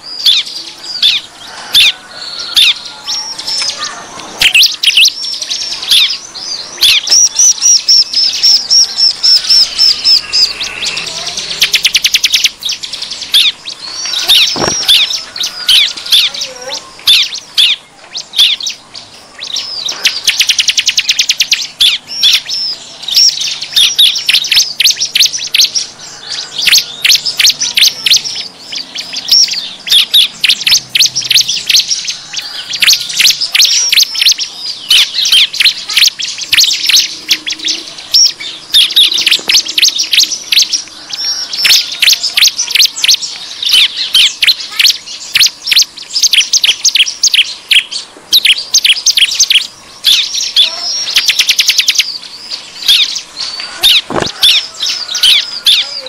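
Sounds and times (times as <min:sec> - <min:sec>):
birds chirping and trilling: 0:00.0 - 0:56.0.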